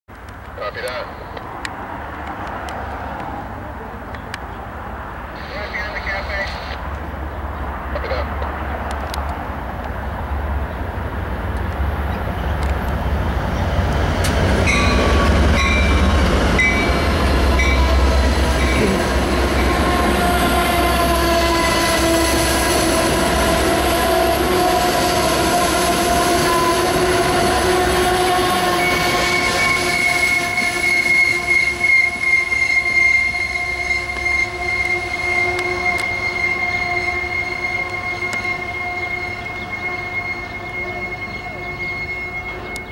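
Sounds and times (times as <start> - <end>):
diesel locomotive rumbling: 0.2 - 42.9
wheels and brakes squealing: 23.9 - 42.9.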